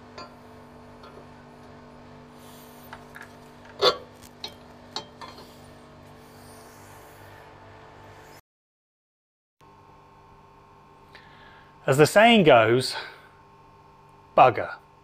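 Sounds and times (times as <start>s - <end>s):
steady hum: 0.0s - 8.4s.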